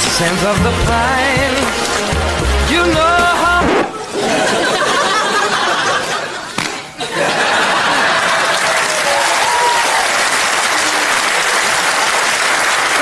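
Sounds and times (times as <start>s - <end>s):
audience clapping and applauding: 0.0s - 3.5s, 7.7s - 13.0s
backing music: 0.0s - 4.0s.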